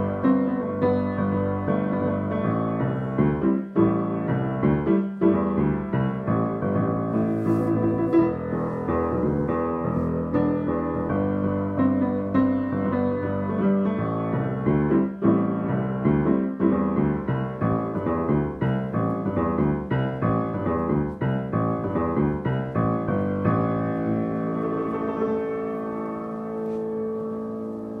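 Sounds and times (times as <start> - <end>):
grand piano playing: 0.0 - 28.0.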